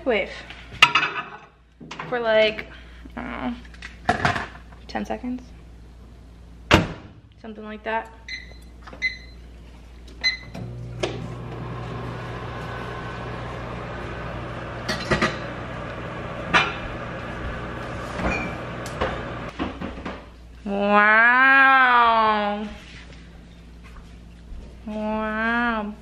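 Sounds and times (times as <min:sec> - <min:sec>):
microwave keypad beeps: 0:08.3 - 0:09.4
microwave oven humming: 0:10.2 - 0:19.5.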